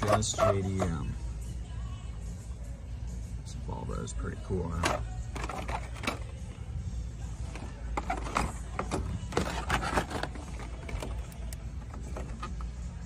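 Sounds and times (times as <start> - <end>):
low background hum: 0.0 - 13.0
plastic packs clacking and crinkling: 4.8 - 6.4, 7.5 - 12.5.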